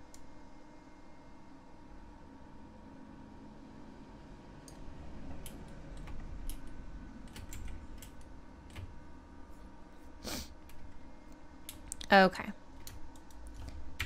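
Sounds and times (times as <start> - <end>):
keyboard keys clicking: 5.4 - 8.9, 12.8 - 14.0.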